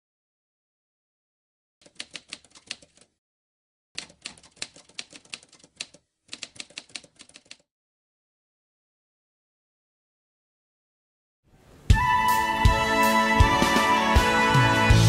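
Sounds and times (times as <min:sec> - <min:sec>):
typewriter key clacks: 0:01.8 - 0:03.1, 0:04.0 - 0:07.6.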